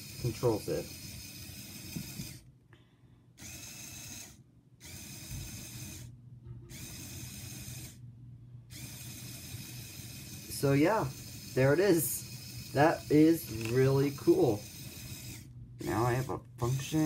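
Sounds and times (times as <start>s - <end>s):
small electric motor whirring: 0.0s - 2.5s, 3.4s - 6.1s, 6.7s - 8.0s, 8.7s - 17.0s.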